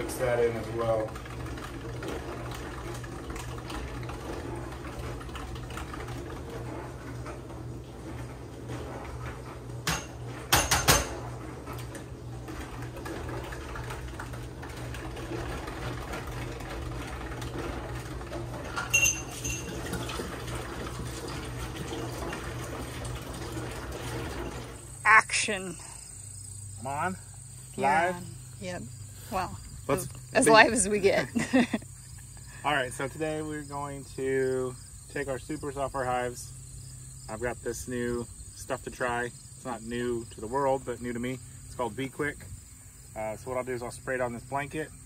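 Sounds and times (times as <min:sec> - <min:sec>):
low steady hum: 0:00.0 - 0:45.0
liquid swishing while stirred: 0:00.1 - 0:09.8, 0:11.3 - 0:25.0
sharp knocks: 0:09.8 - 0:11.2
short ringing clink: 0:18.9 - 0:19.7.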